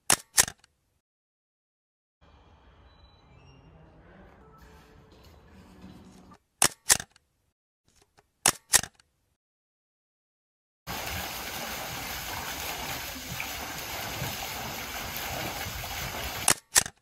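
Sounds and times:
camera shutter clicks: 0.0 - 0.7, 6.6 - 7.2, 8.4 - 9.0, 16.5 - 17.0
water splashing onto waterwheel: 10.9 - 16.6.

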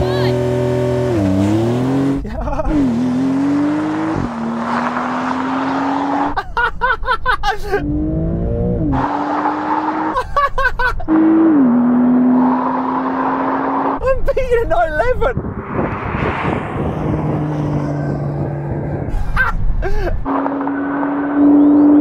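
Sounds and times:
car engine accelerating: 0.0 - 6.4, 7.8 - 10.2, 11.0 - 14.1, 15.3 - 22.0
man laughing and shouting: 2.2 - 3.0, 6.4 - 7.9, 10.1 - 11.1, 14.0 - 15.4, 19.1 - 20.3
tyre and wind noise: 14.6 - 20.3.

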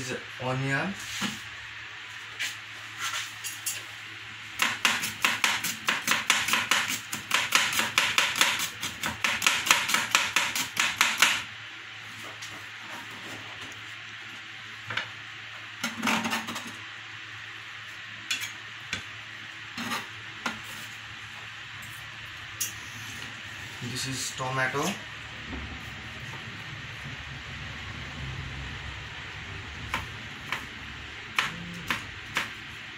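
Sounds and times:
knife chopping onion on plastic board: 4.6 - 11.5, 31.4 - 32.6.

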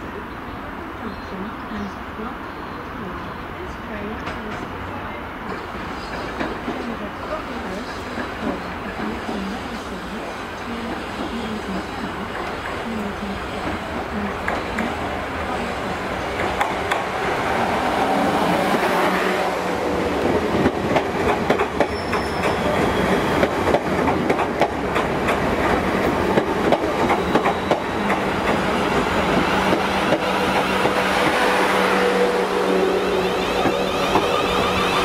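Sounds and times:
train steady hum: 0.0 - 35.0
train wheels clattering over rail joints: 5.5 - 7.0, 20.2 - 22.7, 23.3 - 31.6.

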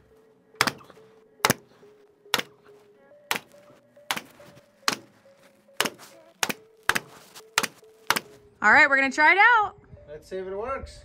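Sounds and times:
faint background music: 0.0 - 11.0.

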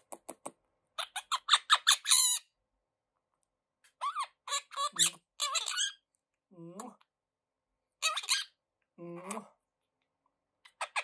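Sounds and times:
parakeet squawky chattering calls: 1.0 - 2.4, 4.0 - 6.0, 8.0 - 8.6, 10.7 - 11.0
parakeet high chirps: 1.0 - 2.5, 4.0 - 6.1, 8.0 - 8.6, 10.6 - 11.0.

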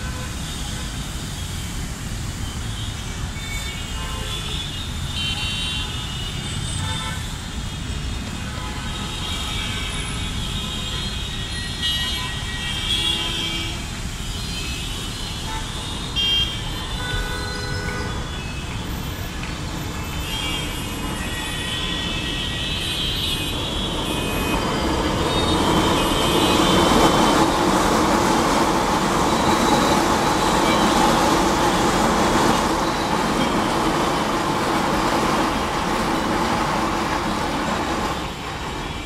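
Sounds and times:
train running past: 15.4 - 39.0.

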